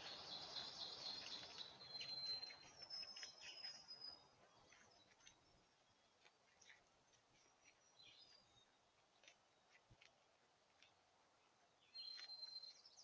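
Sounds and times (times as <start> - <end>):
faint birdsong: 0.0 - 13.0.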